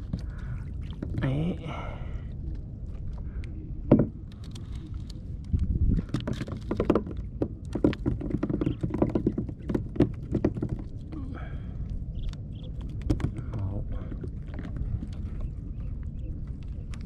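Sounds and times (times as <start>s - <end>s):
low rumble: 0.0s - 17.0s
fish flapping on plastic deck: 6.0s - 11.0s.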